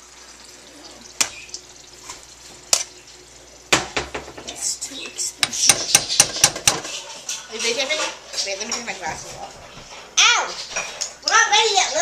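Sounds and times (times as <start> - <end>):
spoon clinking against pot: 5.4 - 8.1.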